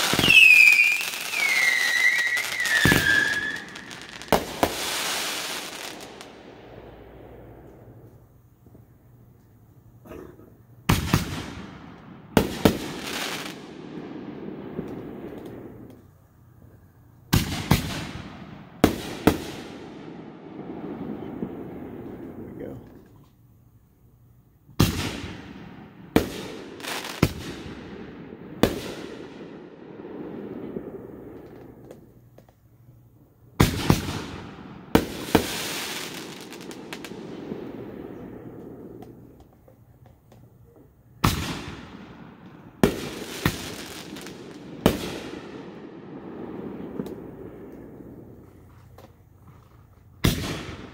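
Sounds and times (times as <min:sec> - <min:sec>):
firework shells bursting: 0:00.0 - 0:08.3
fireworks bursting with echo: 0:00.0 - 0:09.2, 0:10.1 - 0:23.2, 0:24.7 - 0:32.7, 0:33.4 - 0:50.9.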